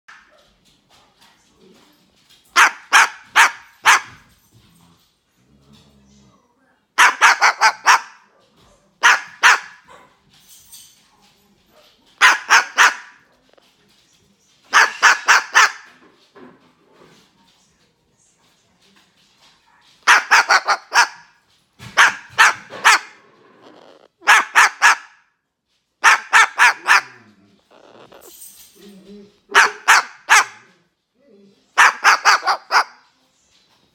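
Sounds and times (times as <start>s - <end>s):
cockatoo imitating dog barks: 7.0s - 8.2s, 12.2s - 13.2s, 14.7s - 15.9s, 20.0s - 21.3s, 22.0s - 25.2s, 26.0s - 28.3s, 29.5s - 30.7s, 31.8s - 33.0s.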